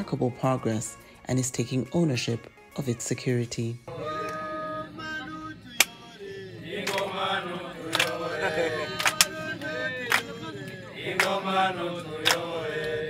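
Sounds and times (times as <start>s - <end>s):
men singing a chant: 3.9s - 13.0s
hand claps keeping time: 5.7s - 6.0s, 6.8s - 13.0s.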